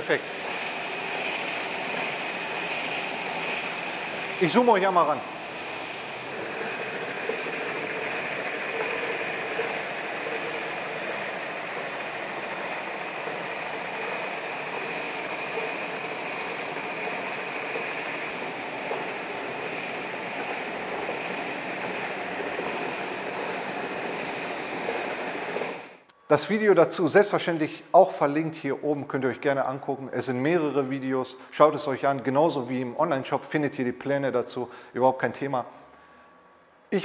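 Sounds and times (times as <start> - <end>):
belt sander whirring: 0.0 - 26.1.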